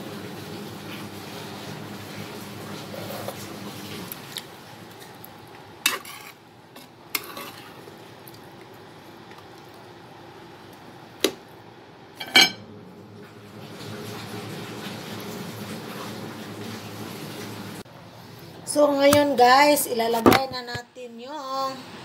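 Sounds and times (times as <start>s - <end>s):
metal ladle clinking on pot: 12.2s - 12.6s.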